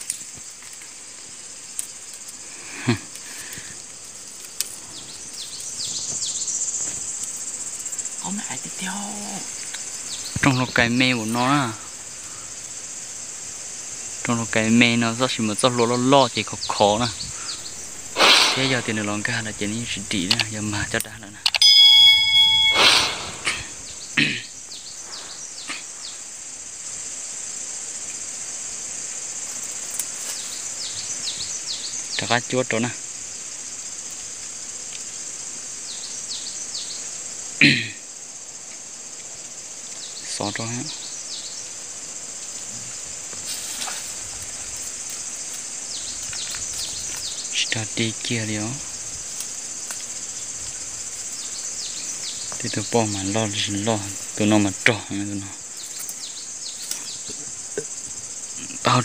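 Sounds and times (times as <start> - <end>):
insects droning: 0.0 - 59.0
high-pitched insect buzzing: 16.6 - 20.3, 21.5 - 26.4
quick falling chirps: 17.5 - 19.0, 21.5 - 24.2
loud falling cry: 21.7 - 23.8.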